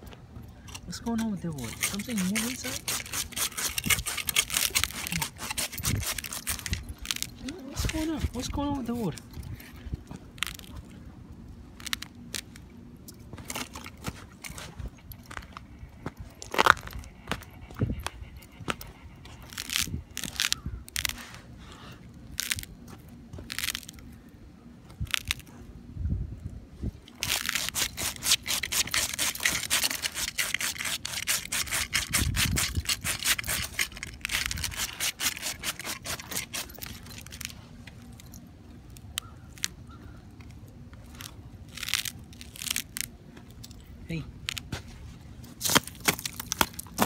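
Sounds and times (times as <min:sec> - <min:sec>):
dog claws scratching icy snow: 0:01.0 - 0:09.8, 0:27.1 - 0:38.2, 0:45.5 - 0:47.0.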